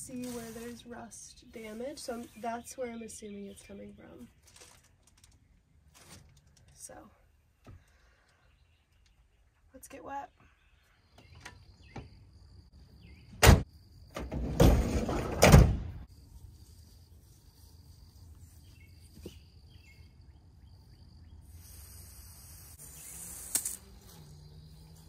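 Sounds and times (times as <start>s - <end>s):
van door rattle and slam: 14.2s - 16.0s
hose nozzle spraying water: 21.6s - 23.9s.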